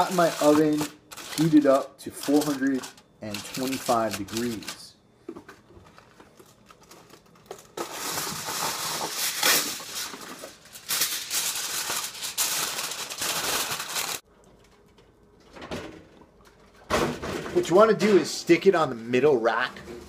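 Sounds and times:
aluminium foil crinkling: 0.0 - 4.9, 5.8 - 15.1.

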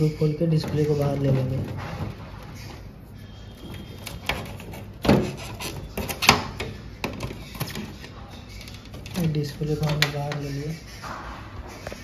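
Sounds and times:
plastic scraping and clicking: 3.6 - 10.5.

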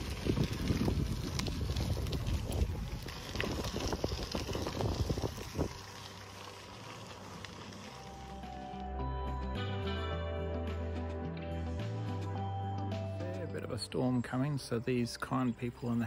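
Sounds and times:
wind on microphone: 0.0 - 5.8
bicycle tyres crunching gravel: 0.0 - 9.1
music: 5.8 - 16.0.

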